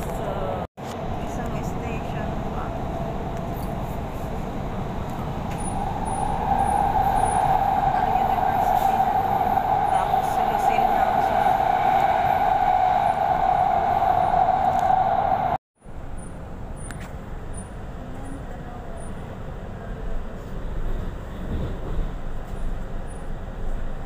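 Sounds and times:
train carriage rumble: 0.0 - 15.6, 17.0 - 24.0
train high whine: 0.8 - 15.6.

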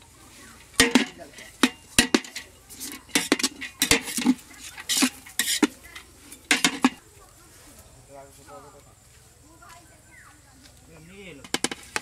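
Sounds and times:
metal spatula scraping a pot: 0.3 - 7.0.

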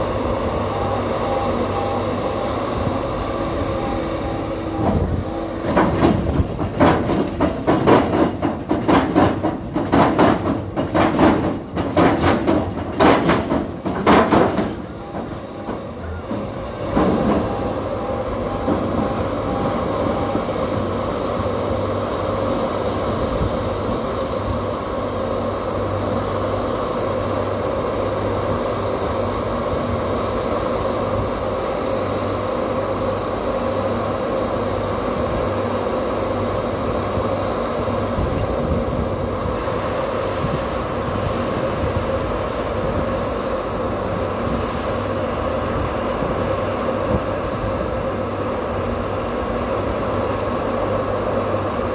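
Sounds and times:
engine running steadily: 0.0 - 51.9
heavy rhythmic pile driving knocks: 4.8 - 17.8.

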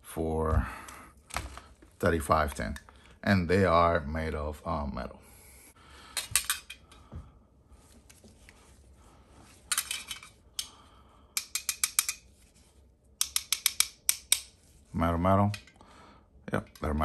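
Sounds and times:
metal plates clicking and clinking: 6.2 - 6.8, 9.7 - 10.4.

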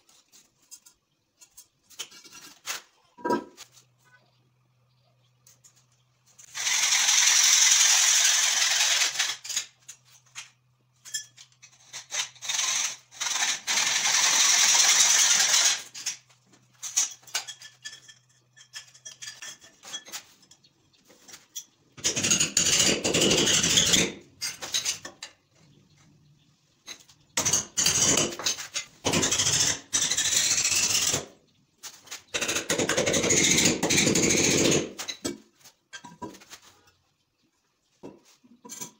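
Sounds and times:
hacksaw cutting plastic pipe: 11.8 - 16.1, 22.0 - 24.2, 27.4 - 31.3, 32.3 - 35.4.

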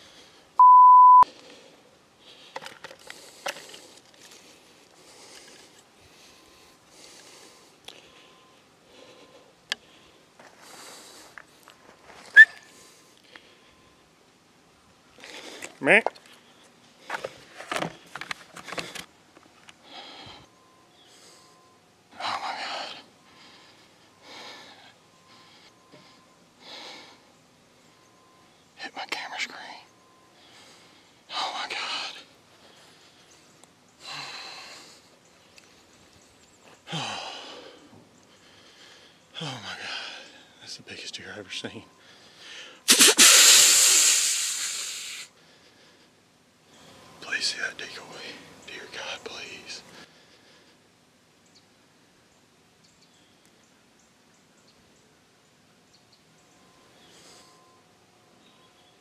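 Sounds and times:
man breathing hard: 0.0 - 0.6, 1.3 - 11.4, 19.8 - 27.3, 30.3 - 31.4, 32.0 - 35.3, 36.8 - 40.6, 42.0 - 46.3
censor bleep tone: 0.6 - 1.3
faint rustles: 1.3 - 14.0.

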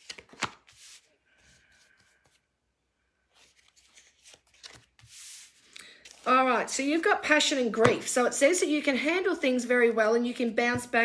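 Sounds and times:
cards rustling: 0.0 - 2.4, 3.3 - 6.7.

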